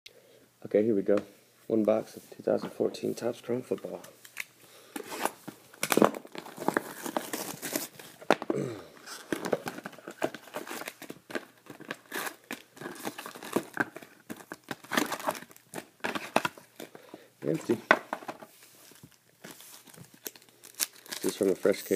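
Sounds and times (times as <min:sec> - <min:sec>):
foil packs crinkling: 0:05.0 - 0:17.8, 0:19.0 - 0:21.9
shrink-wrap tearing and crumpling: 0:05.1 - 0:16.9, 0:19.4 - 0:21.9.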